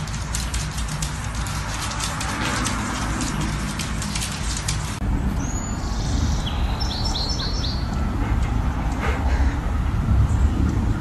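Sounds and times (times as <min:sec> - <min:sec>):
steady low rumble: 0:00.0 - 0:11.0
bird singing: 0:05.4 - 0:08.0.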